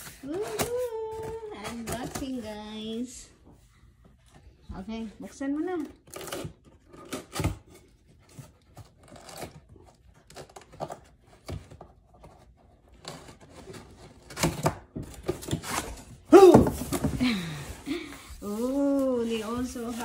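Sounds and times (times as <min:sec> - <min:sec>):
packing tape tearing: 0:06.0 - 0:16.2.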